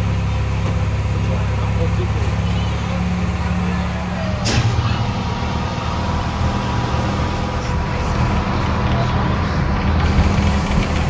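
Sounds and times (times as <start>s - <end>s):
diesel locomotive engine drone: 0.0s - 11.0s
sharp clunk: 4.4s - 5.0s.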